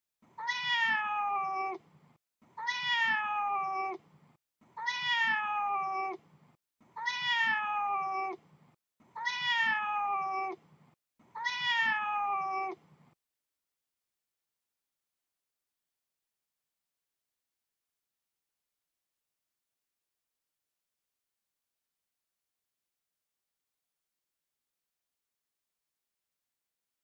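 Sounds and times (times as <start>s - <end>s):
cat meowing: 0.4s - 1.8s, 2.6s - 4.0s, 4.8s - 6.2s, 7.0s - 8.4s, 9.2s - 10.6s, 11.4s - 12.8s.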